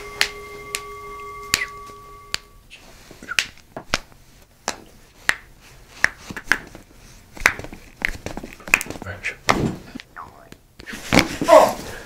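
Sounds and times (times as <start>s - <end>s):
held ringing tone: 0.0s - 2.6s.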